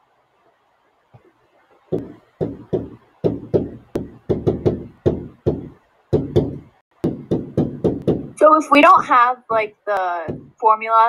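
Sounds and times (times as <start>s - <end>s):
pen knocking on touchscreen: 1.9s - 8.4s, 10.3s - 10.6s.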